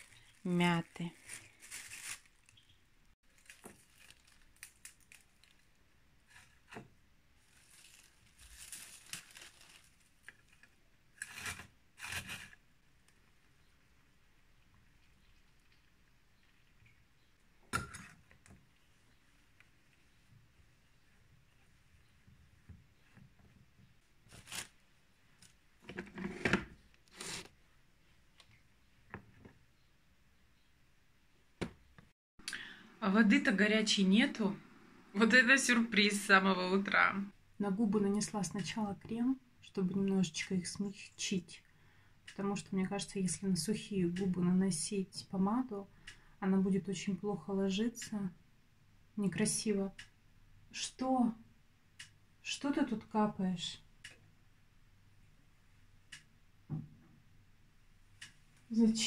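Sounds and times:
plastic bag rustling: 0:00.0 - 0:06.7, 0:07.4 - 0:12.6, 0:24.3 - 0:24.8
cloth rustling: 0:01.1 - 0:02.7, 0:07.4 - 0:10.2.

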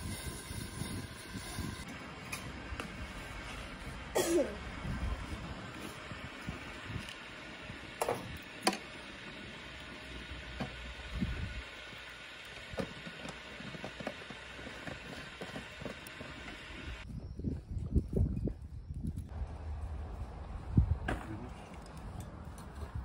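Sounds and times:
fire crackling: 0:00.0 - 0:17.1
wood fire rushing: 0:04.6 - 0:17.0.

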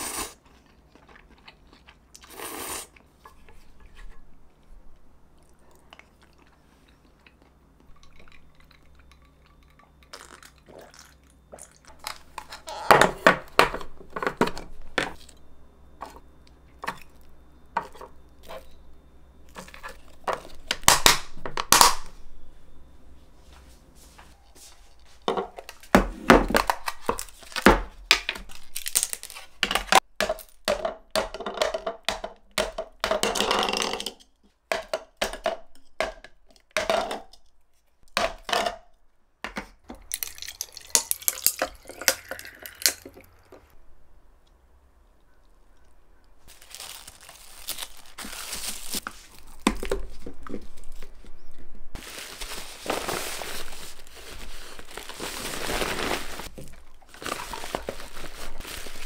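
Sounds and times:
water pouring over ice: 0:40.0 - 0:43.3
containers and glass clattering: 0:40.0 - 0:43.7
ice clinking into glass: 0:40.1 - 0:43.3.

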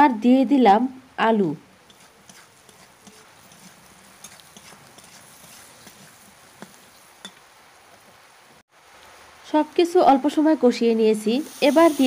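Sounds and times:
spatula scraping pan: 0:01.8 - 0:07.4.

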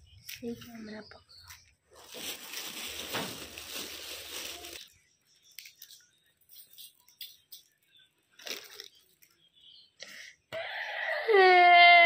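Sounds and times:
dry grain rustling in a tub: 0:02.0 - 0:04.9.

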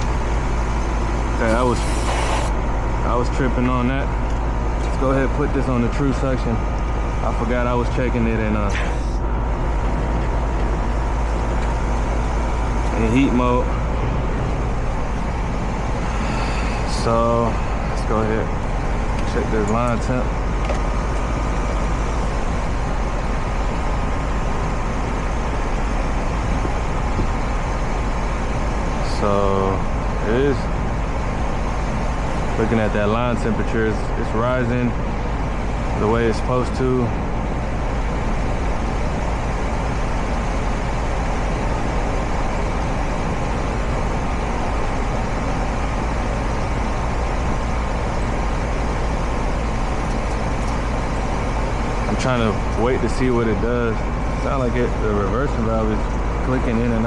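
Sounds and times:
fan whooshing: 0:00.0 - 0:57.0
heat pump humming: 0:00.0 - 0:57.0
rush of air: 0:01.7 - 0:02.6.

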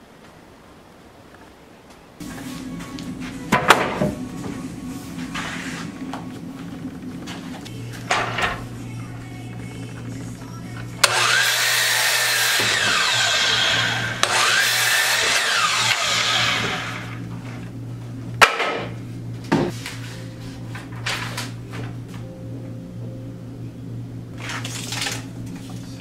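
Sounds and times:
miter saw cutting wood: 0:11.0 - 0:17.2.

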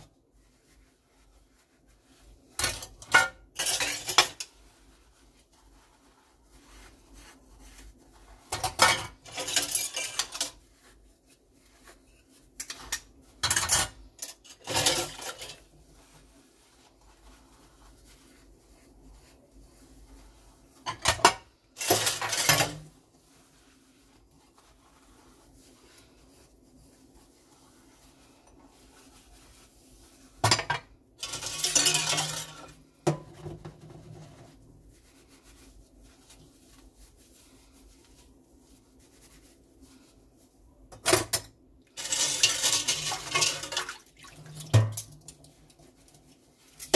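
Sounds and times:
dishes clattering in sink: 0:02.6 - 0:04.5, 0:08.5 - 0:10.6, 0:12.6 - 0:15.6, 0:20.9 - 0:22.9, 0:30.4 - 0:33.8, 0:41.0 - 0:45.3.

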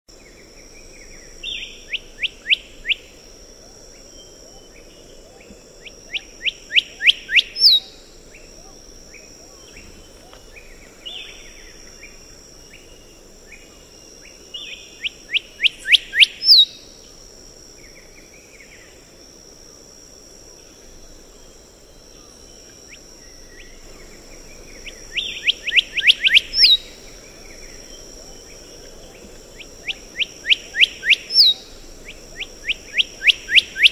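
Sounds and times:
bird whistling song: 0:01.4 - 0:03.1, 0:06.1 - 0:08.0, 0:14.6 - 0:16.9, 0:24.8 - 0:28.0, 0:29.6 - 0:33.9.

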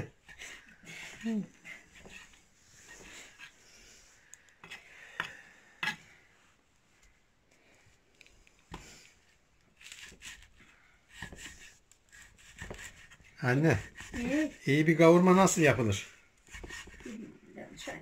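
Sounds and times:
knife slicing and scraping meat: 0:09.8 - 0:14.6.

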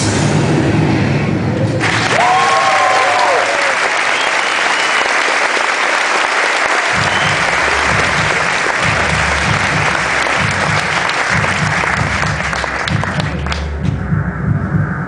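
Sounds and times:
audience applauding: 0:01.8 - 0:13.8
pulsing bass music: 0:06.9 - 0:15.0.

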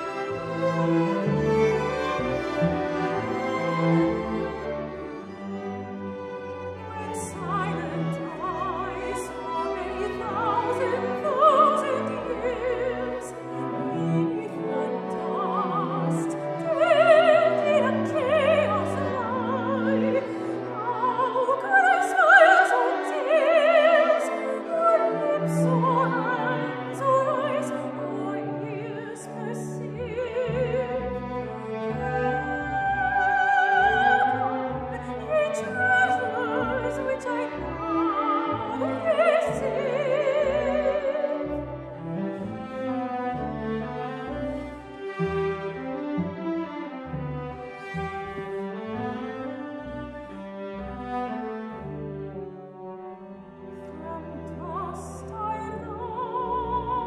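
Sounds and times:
string orchestra chords: 0:00.0 - 0:57.0
soprano singing with vibrato: 0:06.9 - 0:31.2, 0:31.9 - 0:41.7, 0:54.0 - 0:57.0.

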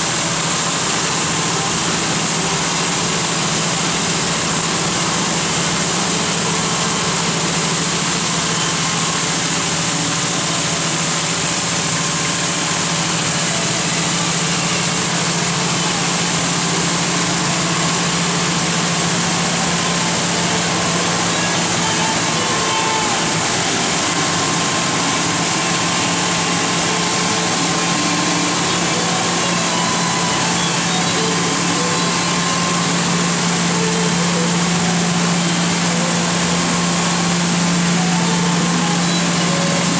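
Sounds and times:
abrasive belt and coolant hiss: 0:00.0 - 0:39.9
belt grinder humming: 0:11.8 - 0:39.9.

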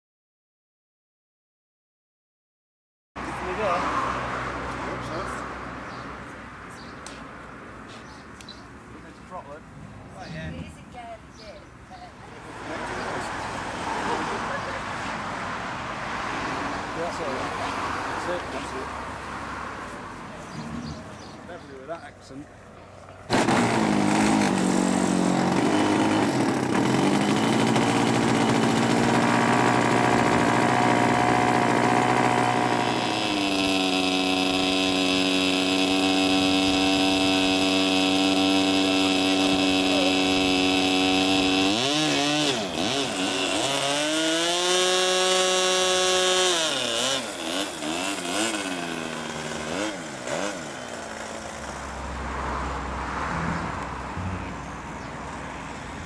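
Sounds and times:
model aircraft engine revving: 0:23.3 - 0:52.1.

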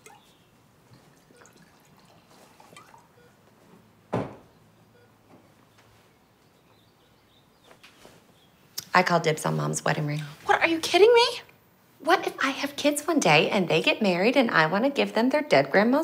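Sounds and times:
wine trickling into glass: 0:00.9 - 0:03.2.

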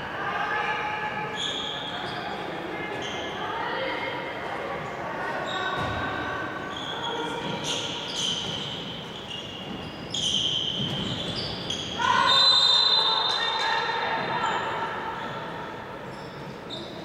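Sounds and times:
shoes squeaking on wooden floor: 0:06.7 - 0:12.0.

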